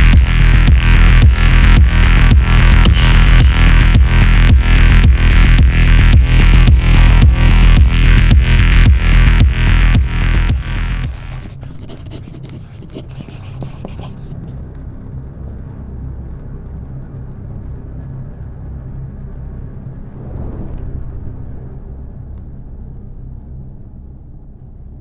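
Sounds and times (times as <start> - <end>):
deep cinematic rumble: 0.0 - 25.0
crackling: 10.3 - 24.2.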